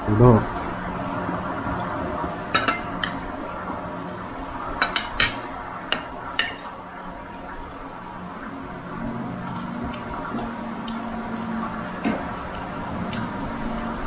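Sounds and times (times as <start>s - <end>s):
cutlery clinking against dishes: 4.8s - 6.7s.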